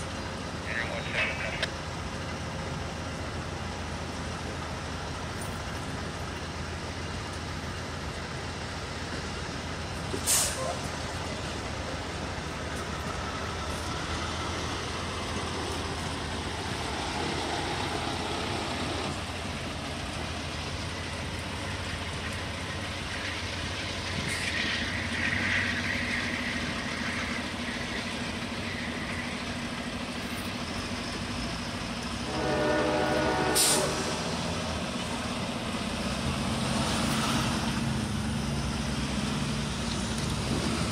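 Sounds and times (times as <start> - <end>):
train cars rolling on rails: 0.0 - 40.9.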